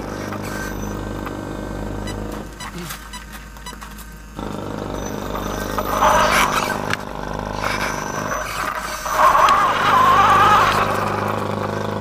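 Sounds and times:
toy car motor whine: 0.0s - 12.0s
tyres rolling over gravel: 0.0s - 12.0s.

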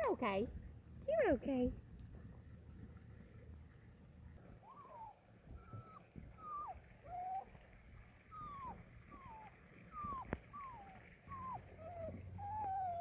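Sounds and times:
puppy whimpering: 4.6s - 13.0s.

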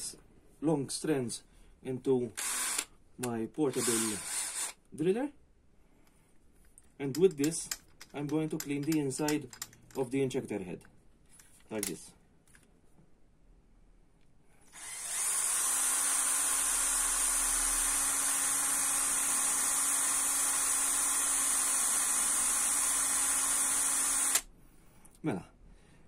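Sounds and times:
cordless drill spinning: 2.4s - 2.9s, 3.7s - 4.8s, 14.7s - 24.5s.

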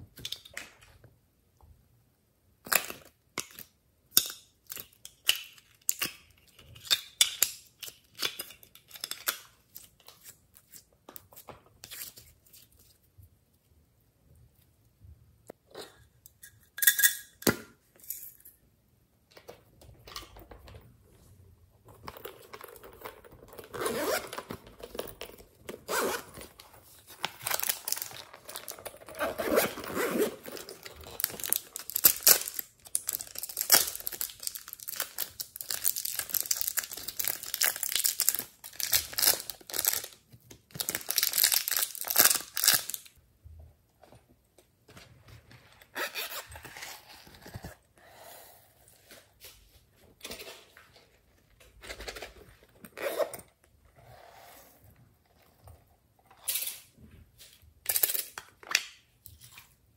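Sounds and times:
plastic wrapping crinkling and tearing: 22.4s - 43.2s.

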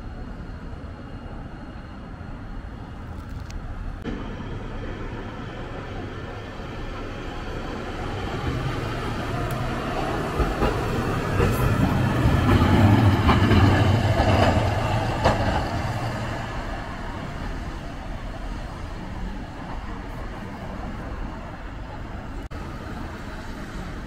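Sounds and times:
streetcar running hum: 0.0s - 24.0s
wheels clacking over rail joints: 7.0s - 21.0s.

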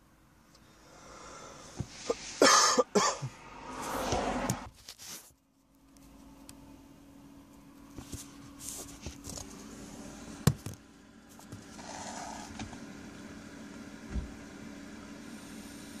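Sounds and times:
steady low hum: 0.0s - 4.4s.

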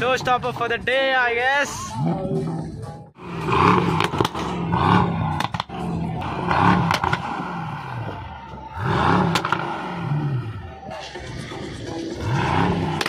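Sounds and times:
car engine revving: 1.9s - 13.0s
exhaust cracks: 3.2s - 13.0s.

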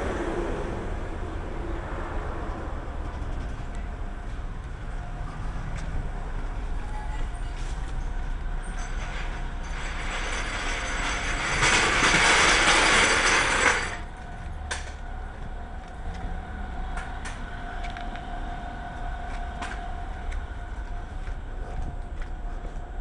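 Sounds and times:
low background rumble: 0.0s - 23.0s
steady hum: 13.1s - 23.0s.

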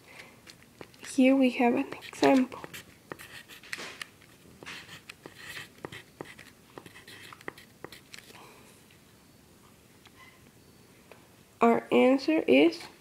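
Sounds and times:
pen scratching on paper: 1.8s - 3.8s, 4.6s - 8.3s.

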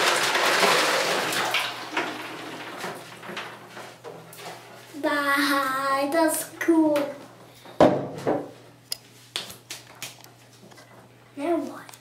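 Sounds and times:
ice cubes clinking: 0.0s - 1.6s
ice cubes splashing into water: 0.0s - 3.0s.

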